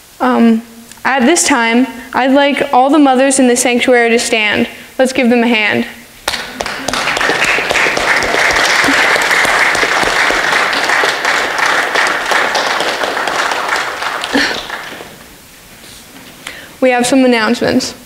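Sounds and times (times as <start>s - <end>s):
crowd applauding: 6.3s - 15.3s.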